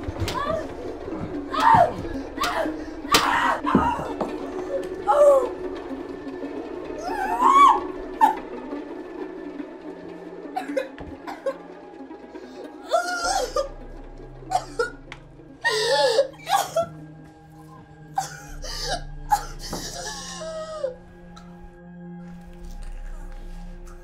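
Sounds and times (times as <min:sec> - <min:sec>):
droning film score: 0:00.0 - 0:24.0
woman gasping in pain: 0:15.6 - 0:16.9.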